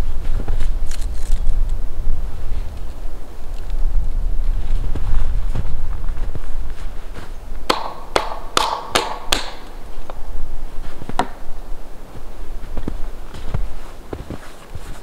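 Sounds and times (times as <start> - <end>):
wooden poles knocking: 7.7 - 9.9, 11.1 - 11.4.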